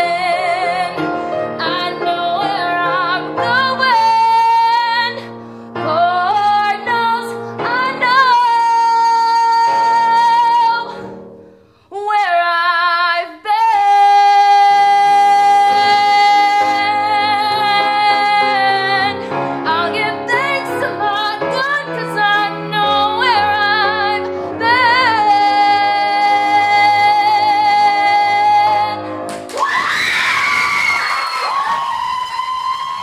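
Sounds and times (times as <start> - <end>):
woman singing with vibrato: 0.0 - 11.0, 11.9 - 29.2.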